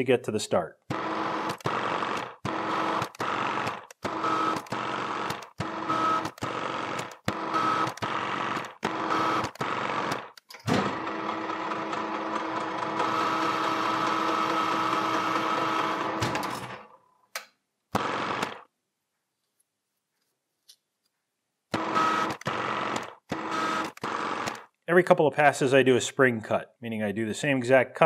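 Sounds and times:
metal lathe whining: 10.7s - 16.8s.

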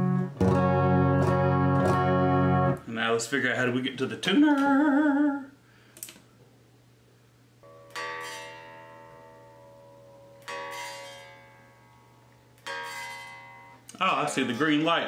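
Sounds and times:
electric guitar strings plucked: 0.0s - 2.8s, 7.6s - 14.6s.

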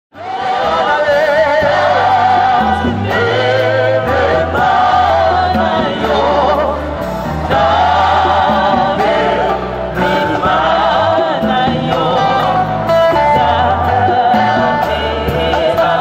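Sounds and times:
gospel choir singing: 0.2s - 16.0s
sustained bass notes: 0.2s - 16.0s.

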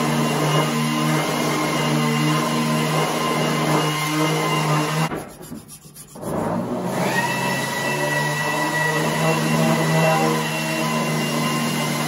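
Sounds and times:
metal tool scraping groove: 5.0s - 6.9s.

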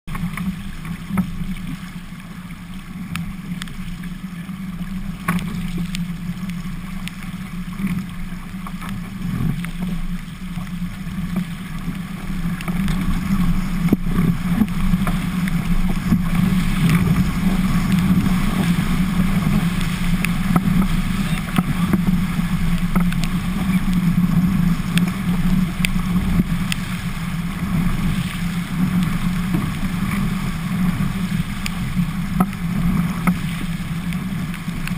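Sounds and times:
rushing water: 0.1s - 34.9s
wind: 0.1s - 34.9s
scattered ticks: 11.3s - 26.9s.

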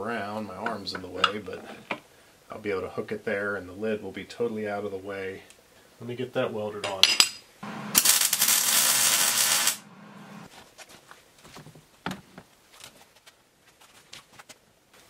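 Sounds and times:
electric arc welding buzz: 7.6s - 10.5s.

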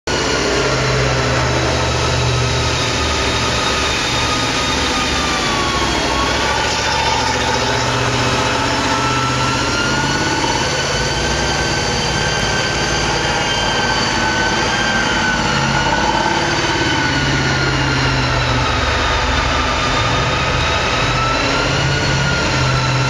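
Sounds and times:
high whine: 0.1s - 23.0s
tank engine running: 0.1s - 23.0s.

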